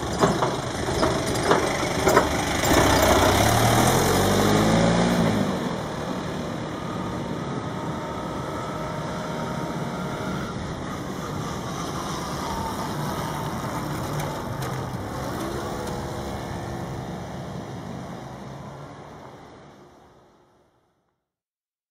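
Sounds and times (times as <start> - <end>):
cars driving over level crossing: 0.0 - 19.7
car engine revving away: 2.5 - 6.6.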